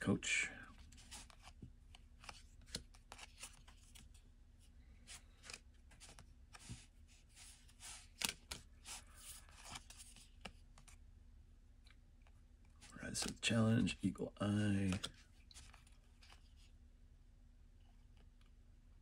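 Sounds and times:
trading cards rustling and clicking: 0.8s - 4.2s, 5.0s - 11.0s, 12.8s - 16.7s.

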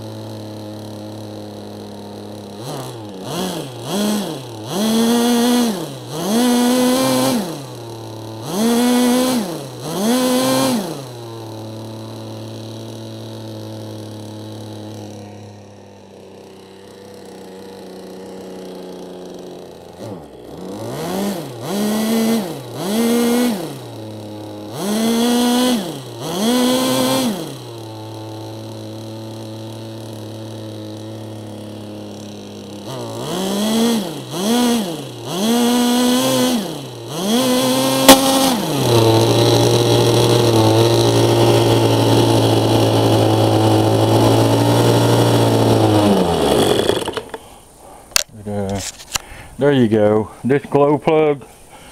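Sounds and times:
model engine revving: 0.0s - 49.3s
sharp click: 38.1s - 38.6s
man talking: 48.3s - 48.9s, 49.6s - 51.6s.

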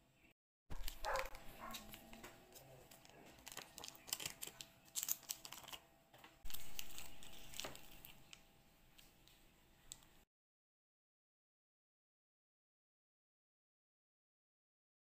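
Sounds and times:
plastic wrapper crinkling: 0.7s - 10.2s.

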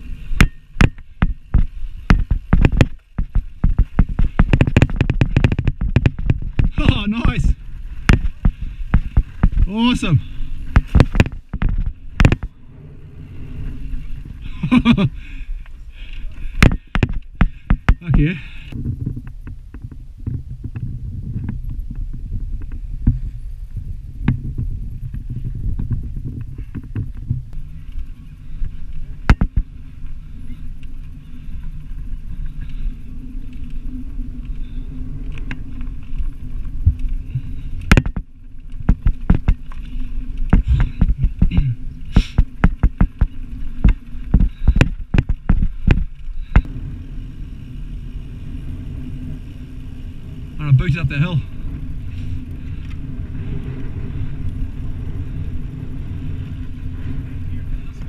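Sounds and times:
bike knocks and rattles: 0.0s - 12.6s, 13.3s - 15.4s, 16.0s - 46.8s
low rumble of tyres on sand: 0.0s - 58.0s
wind on microphone: 16.3s - 58.0s.

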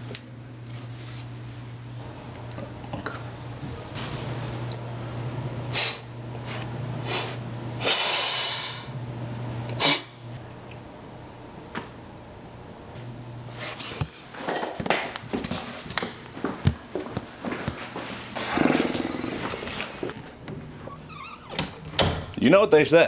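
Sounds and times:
low room hum: 0.0s - 23.0s
breathy sniffs: 5.7s - 8.9s
long exhale: 7.0s - 9.0s.

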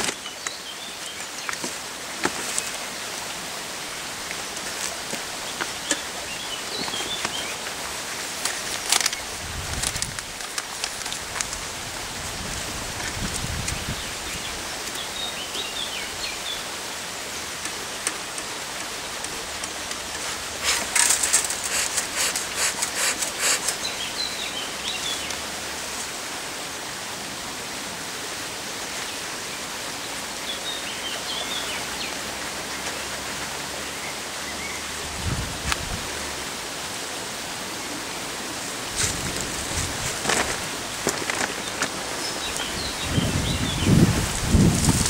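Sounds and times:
steady outdoor hiss: 0.0s - 45.0s
rapid rustling and crackling: 4.2s - 13.9s, 17.4s - 24.1s, 38.6s - 43.2s, 44.1s - 45.0s
small birds chirping: 4.3s - 7.8s, 13.4s - 25.5s, 39.0s - 45.0s.

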